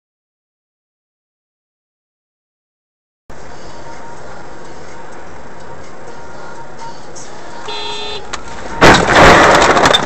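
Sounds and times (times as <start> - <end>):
car road and engine noise: 3.3 - 10.0.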